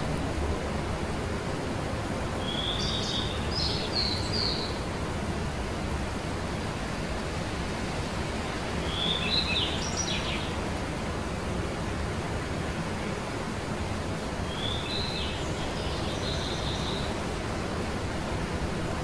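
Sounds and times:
steady outdoor rushing noise: 0.0s - 19.0s
songbirds chirping: 2.3s - 5.7s, 8.4s - 11.0s, 13.8s - 18.4s.

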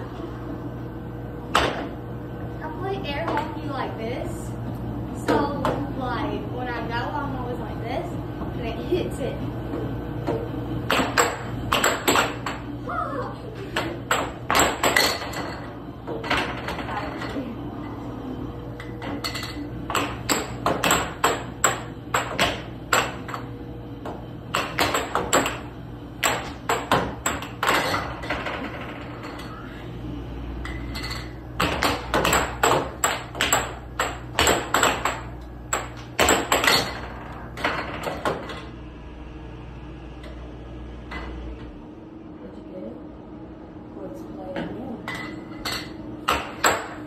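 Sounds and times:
air hockey puck clacking: 10.3s - 12.6s, 19.0s - 23.5s, 24.5s - 28.8s, 31.6s - 38.7s, 45.7s - 47.0s.

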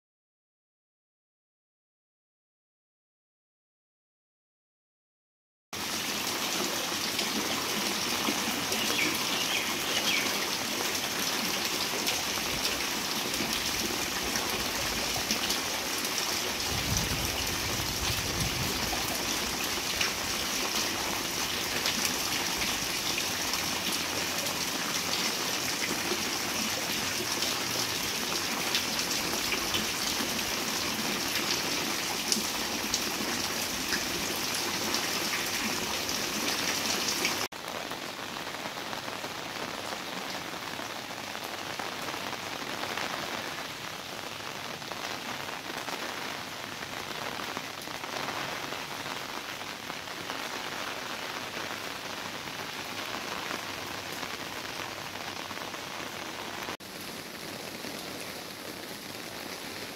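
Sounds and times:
heavy rain splashing on water: 5.8s - 59.9s.

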